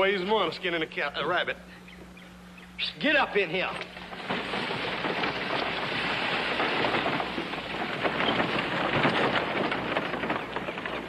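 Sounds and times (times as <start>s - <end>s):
wooden wheels rattling: 3.0s - 11.0s
clatter of horse hooves: 3.4s - 11.0s.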